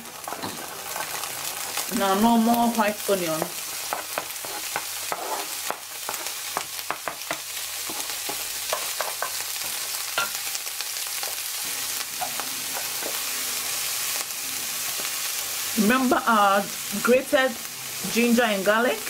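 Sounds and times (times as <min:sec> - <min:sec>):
onions sizzling in hot oil: 0:00.0 - 0:19.0
wooden spatula scraping pan: 0:03.9 - 0:06.4.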